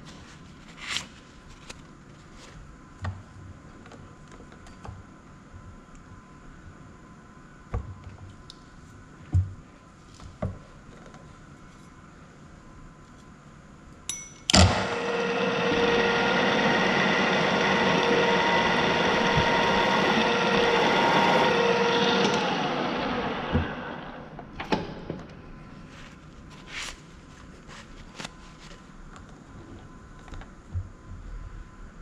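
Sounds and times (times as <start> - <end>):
drill press whirring: 14.5 - 24.8.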